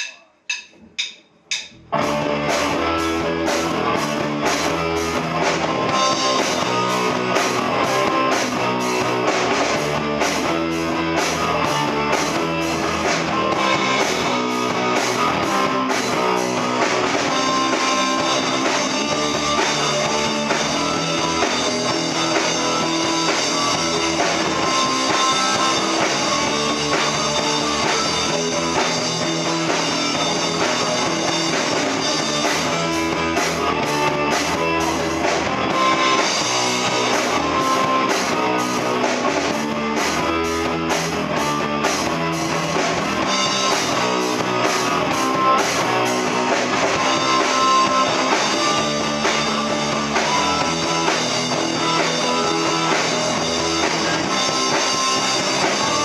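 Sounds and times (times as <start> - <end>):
count-in hits: 0.0 - 1.9
live rock band playing: 0.0 - 56.0.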